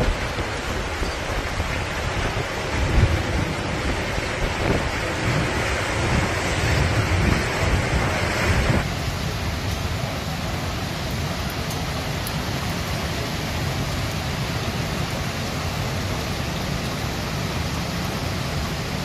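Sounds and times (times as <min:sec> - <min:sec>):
wind buffeting microphone: 0:00.0 - 0:08.9
waves crashing on breakwater: 0:00.0 - 0:19.0.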